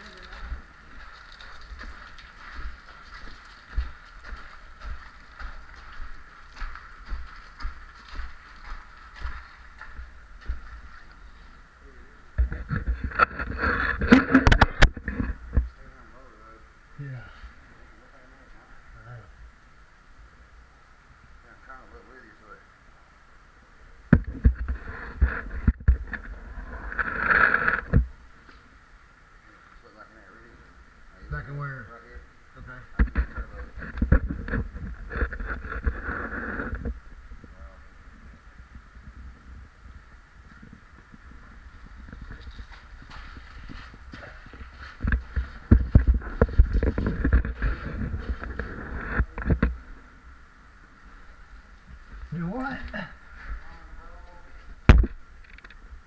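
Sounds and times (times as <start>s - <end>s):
crawling over rock and gravel: 0.0s - 11.6s, 33.1s - 37.0s, 40.5s - 49.6s.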